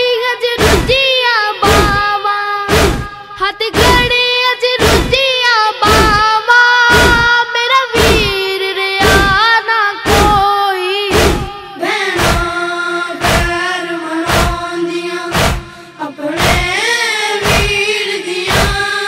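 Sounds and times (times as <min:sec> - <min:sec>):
boy singing a lament: 0:00.0 - 0:19.0
deep drum thumps: 0:00.6 - 0:01.0, 0:01.6 - 0:02.0, 0:02.7 - 0:03.2, 0:03.8 - 0:04.2, 0:04.8 - 0:05.2, 0:05.8 - 0:06.3, 0:06.9 - 0:07.3, 0:08.0 - 0:08.4, 0:09.0 - 0:09.4, 0:10.1 - 0:10.5, 0:11.1 - 0:11.5, 0:12.2 - 0:12.5, 0:13.2 - 0:13.5, 0:14.3 - 0:14.6, 0:15.3 - 0:15.7, 0:16.4 - 0:16.7, 0:17.4 - 0:17.8, 0:18.5 - 0:18.8.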